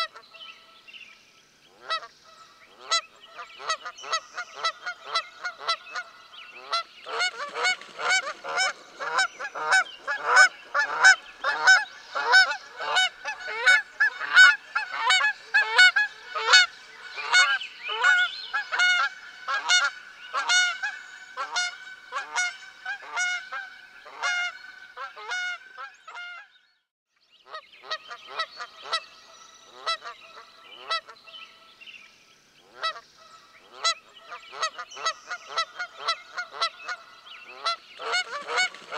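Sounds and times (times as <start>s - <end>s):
geese honking: 3.6s - 26.4s, 33.7s - 38.9s.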